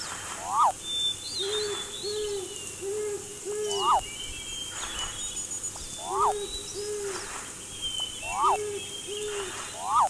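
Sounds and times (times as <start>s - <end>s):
owls hooting: 0.4s - 0.8s, 1.4s - 4.0s, 6.0s - 7.2s, 8.2s - 10.0s
rising-and-falling calls: 0.4s - 0.8s, 3.6s - 4.0s, 6.0s - 7.2s, 8.2s - 10.0s.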